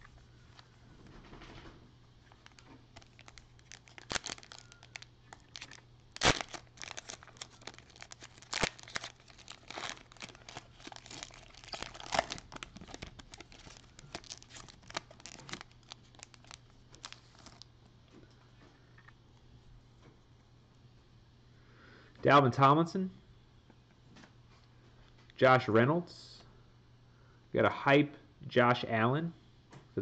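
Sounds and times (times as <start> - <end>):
foil wrappers crinkling and tearing: 2.3 - 17.7.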